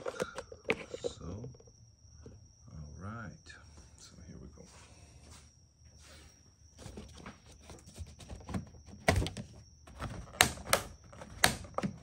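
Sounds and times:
plastic ducts clicking and knocking: 0:08.1 - 0:12.0.

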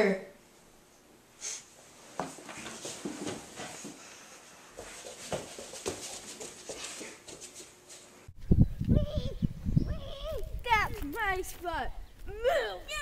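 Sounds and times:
footsteps in small room: 0:01.7 - 0:08.4.

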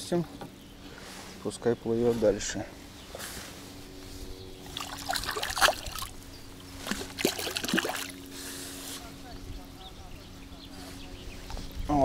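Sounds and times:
fish splashing water: 0:04.6 - 0:06.2, 0:06.8 - 0:08.3.

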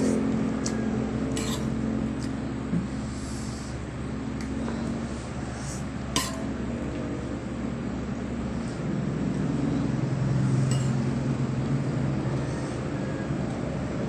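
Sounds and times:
low steady motor hum: 0:00.0 - 0:14.0
sharp clink: 0:10.7 - 0:11.0.

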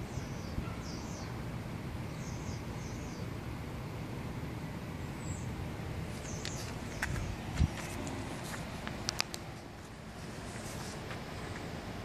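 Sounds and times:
small bird chirping: 0:00.0 - 0:01.4, 0:02.1 - 0:03.3, 0:06.2 - 0:07.4
steady low rumble: 0:00.0 - 0:12.0.

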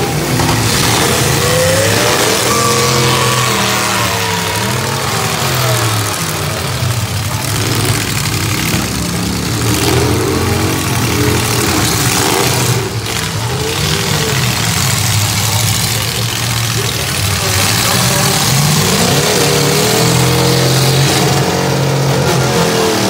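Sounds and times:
car engines revving and idling: 0:00.0 - 0:23.0.

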